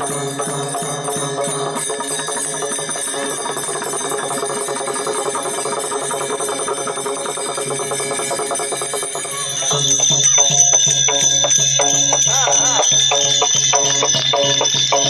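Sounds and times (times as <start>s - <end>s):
jingling metal percussion: 0.0s - 15.0s
person singing: 11.3s - 15.0s.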